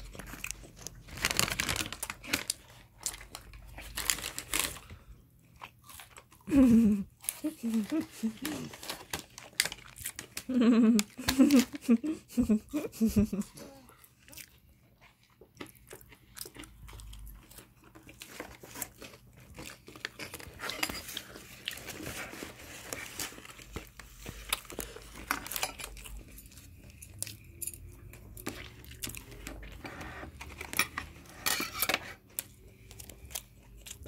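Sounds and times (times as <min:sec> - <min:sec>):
paper wrapping rustling: 0:00.0 - 0:05.1, 0:06.7 - 0:12.5, 0:18.2 - 0:26.6.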